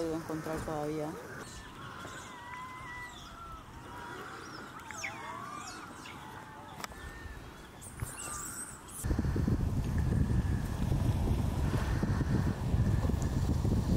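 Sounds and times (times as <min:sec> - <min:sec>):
steady outdoor hiss: 0:00.0 - 0:13.9
wind rumble on microphone: 0:09.0 - 0:13.9.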